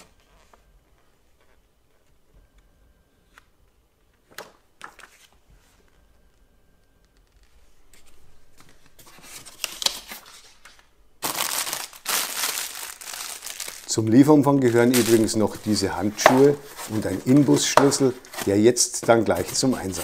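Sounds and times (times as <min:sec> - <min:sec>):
paper rustling: 0:04.2 - 0:05.9, 0:07.3 - 0:20.0
plastic bag crinkling: 0:09.2 - 0:20.0.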